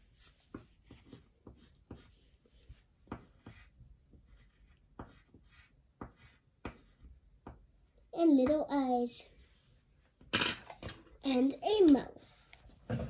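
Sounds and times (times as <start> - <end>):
pencil scratching on paper: 0.0 - 7.2, 12.1 - 12.8.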